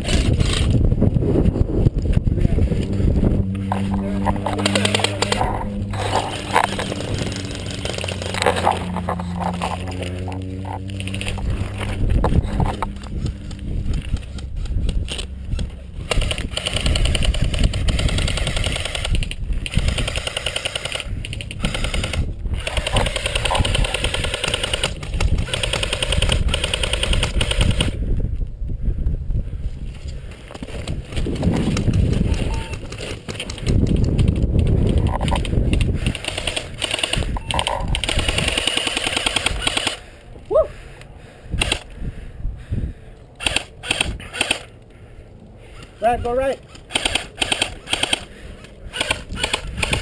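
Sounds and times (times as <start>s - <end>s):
airsoft rifles firing full-auto bursts: 3.7s - 11.8s, 16.0s - 28.0s, 35.2s - 40.1s, 43.4s - 44.7s, 46.7s - 50.0s.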